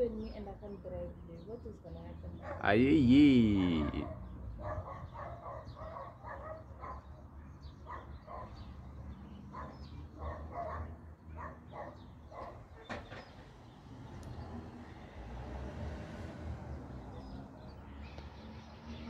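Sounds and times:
dog barking: 2.4 - 2.7, 3.8 - 7.2, 7.8 - 8.7, 9.5 - 12.8.

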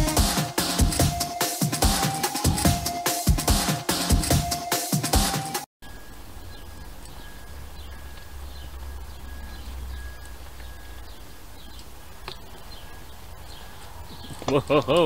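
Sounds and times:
small birds chirping: 5.8 - 15.0.

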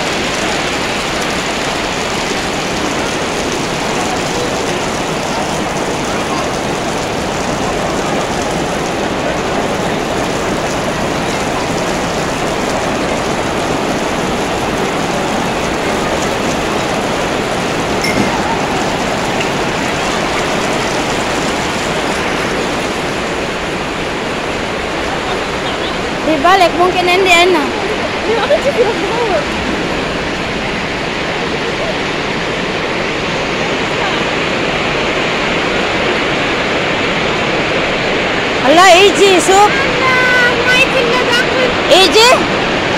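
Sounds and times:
crowd talking and walking: 0.0 - 36.7
heavy rain heard indoors: 0.0 - 42.9.

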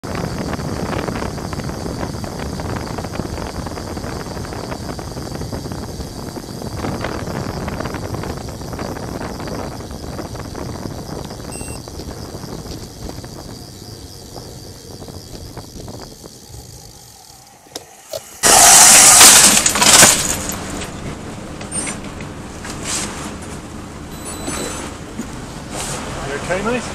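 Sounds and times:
road noise while riding: 0.0 - 26.9
wind noise: 0.0 - 26.9
vehicle crashing onto pavement: 18.4 - 21.0.

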